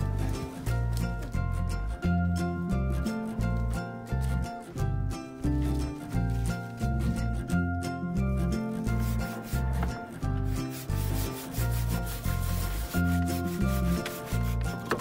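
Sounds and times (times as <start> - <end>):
background music with bass line: 0.0 - 15.0
hand saw cutting log: 8.8 - 15.0.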